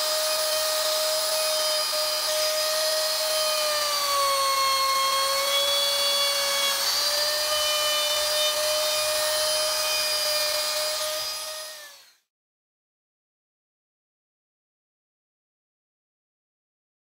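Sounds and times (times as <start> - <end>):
wood router whining: 0.0 - 12.3.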